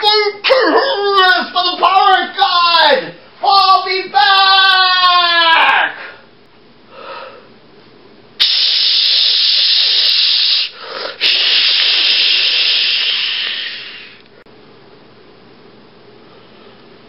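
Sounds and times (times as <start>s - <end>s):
loud steady hiss: 8.3s - 14.4s.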